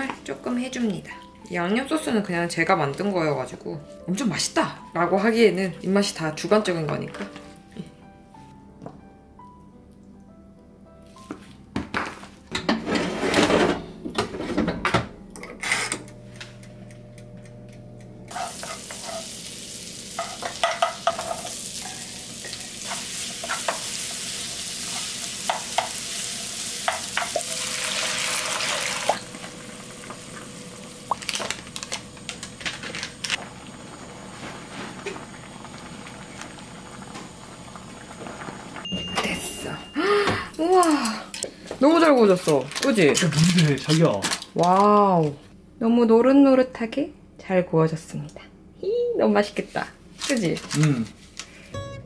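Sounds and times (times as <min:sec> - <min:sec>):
wooden spoon stirring and scraping: 0:18.3 - 0:19.4
onions sizzling in pan: 0:18.3 - 0:38.8.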